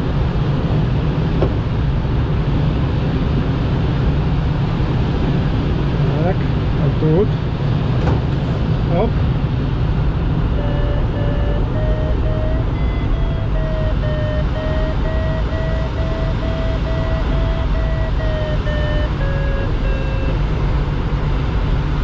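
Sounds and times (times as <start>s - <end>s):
airflow rushing over cockpit: 0.0s - 22.0s
variometer beeping: 10.5s - 20.8s.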